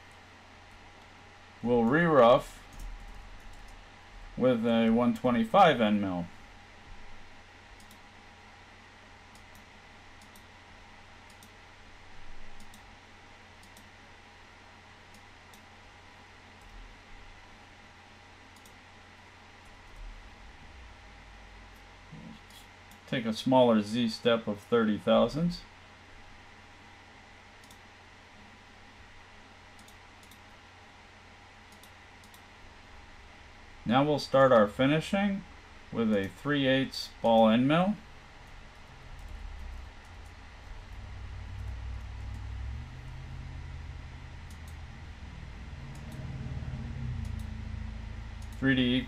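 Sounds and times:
faint steady hum and hiss: 0:00.0 - 0:49.0
computer mouse clicking: 0:02.7 - 0:03.8, 0:07.8 - 0:08.1, 0:09.3 - 0:10.5, 0:11.2 - 0:11.6, 0:12.5 - 0:12.9, 0:13.6 - 0:14.0, 0:15.1 - 0:15.7, 0:18.5 - 0:18.8, 0:27.6 - 0:27.9, 0:29.7 - 0:30.6, 0:31.7 - 0:32.5, 0:38.7 - 0:41.0, 0:44.4 - 0:44.9, 0:45.9 - 0:46.3, 0:47.2 - 0:47.5, 0:48.4 - 0:48.6.

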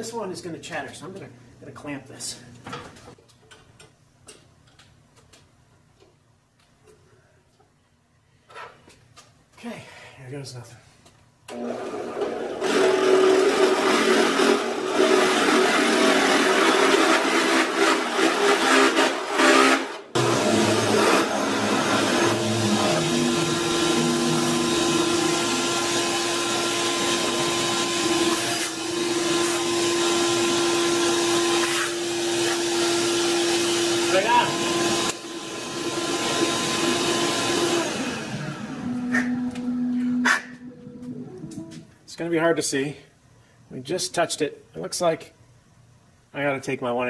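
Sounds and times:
shop vacuum running: 0:11.5 - 0:41.9
drill press boring: 0:16.2 - 0:38.0.

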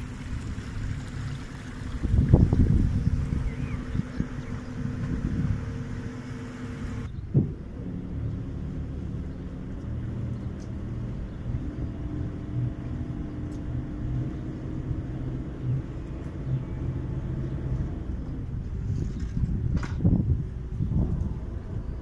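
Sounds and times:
boat engine rumbling: 0:00.0 - 0:22.0.

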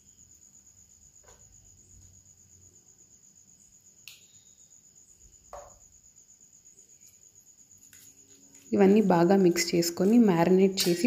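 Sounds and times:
soft knock: 0:05.5 - 0:05.8.

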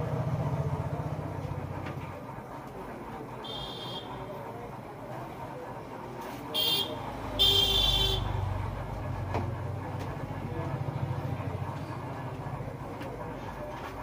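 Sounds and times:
engine rumble going past: 0:00.0 - 0:02.4
vehicle horn honking: 0:03.4 - 0:04.4, 0:06.5 - 0:08.4.

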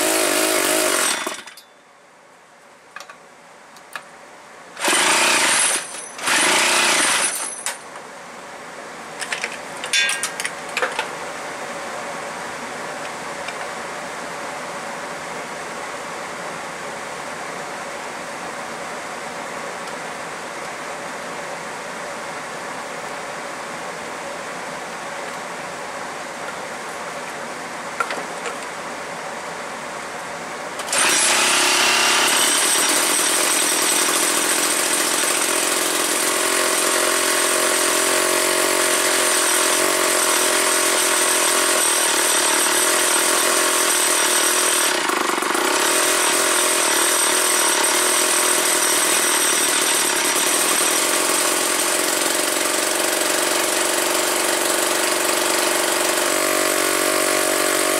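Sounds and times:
chainsaw engine running: 0:00.0 - 0:01.6, 0:04.8 - 0:07.5, 0:30.8 - 0:57.9.

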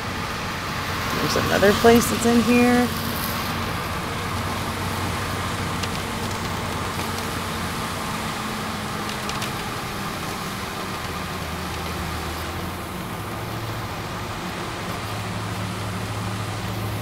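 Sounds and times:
low engine hum: 0:00.0 - 0:17.0
tyres on wet pavement: 0:00.0 - 0:17.0.

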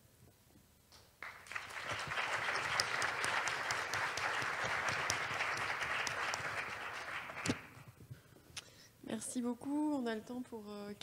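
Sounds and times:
audience applauding: 0:01.2 - 0:08.0.

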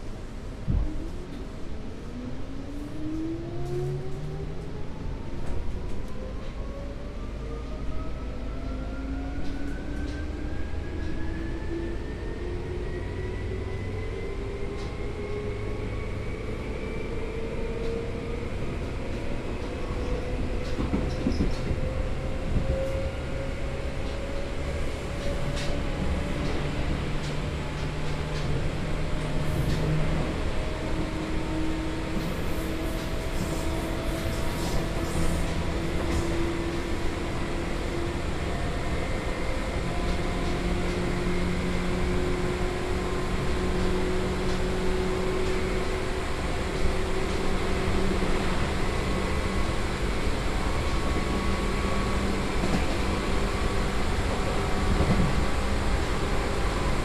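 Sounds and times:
wheel and rail rumble: 0:14.6 - 0:57.0.

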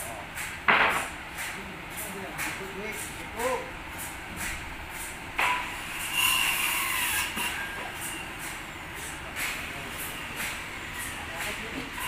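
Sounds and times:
mill noise: 0:00.0 - 0:06.1, 0:07.4 - 0:12.0
high squeal: 0:06.0 - 0:08.3.

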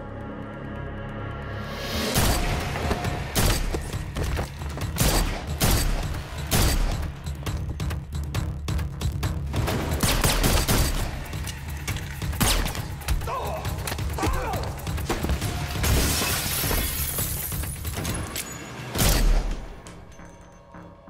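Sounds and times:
low dark music score: 0:00.0 - 0:16.2, 0:17.5 - 0:21.0
glass shattering: 0:15.8 - 0:19.1.

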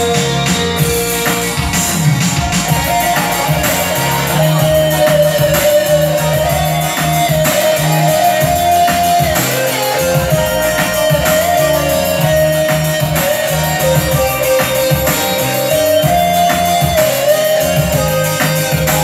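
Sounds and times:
electronic keyboard ballad: 0:00.0 - 0:19.0.

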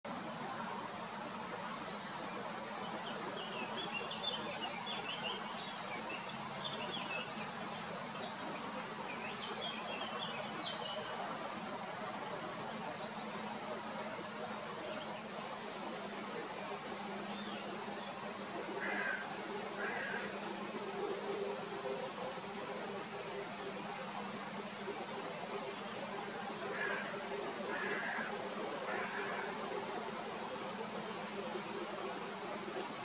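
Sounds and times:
background hiss: 0:00.1 - 0:33.0
insect buzzing: 0:02.4 - 0:33.0
birds twittering: 0:17.2 - 0:20.6, 0:26.7 - 0:29.7.

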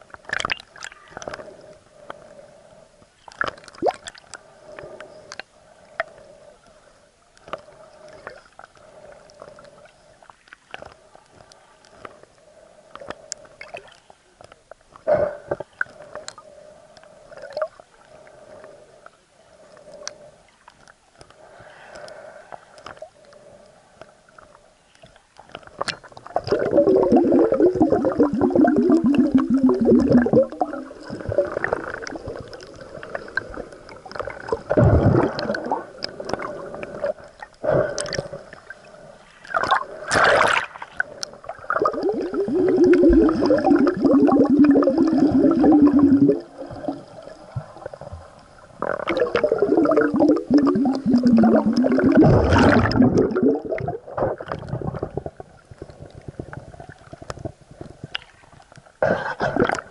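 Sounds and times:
water gurgling and bubbling: 0:26.1 - 0:38.7, 0:39.4 - 0:48.2, 0:48.8 - 0:57.6, 0:59.0 - 0:59.9
sharp water splash: 0:39.5 - 0:41.0.

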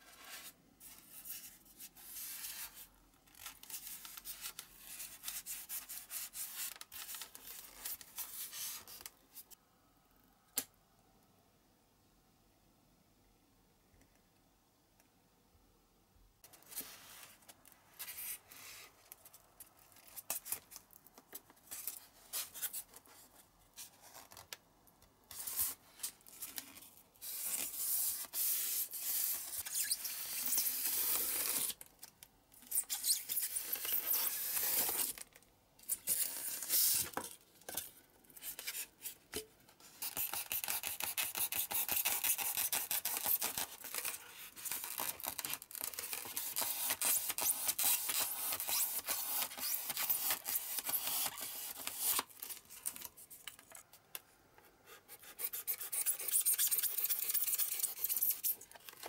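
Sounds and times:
polystyrene foam squeaking and crunching: 0:27.2 - 0:31.8, 0:32.7 - 0:35.2, 0:42.8 - 0:52.2.

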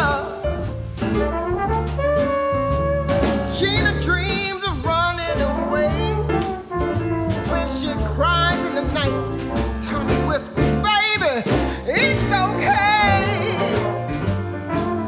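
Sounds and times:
song with singing and beat: 0:00.0 - 0:01.2, 0:03.2 - 0:14.9.

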